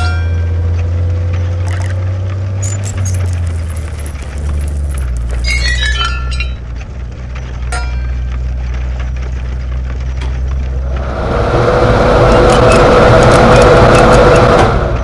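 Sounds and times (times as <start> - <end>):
low hum: 0.2 - 13.4
metal parts clinking: 1.6 - 2.0, 2.6 - 6.6.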